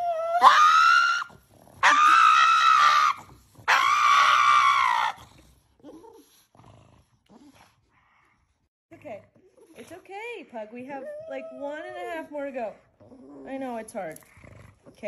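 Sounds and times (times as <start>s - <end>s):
dog screaming high-pitched: 0.0s - 5.2s.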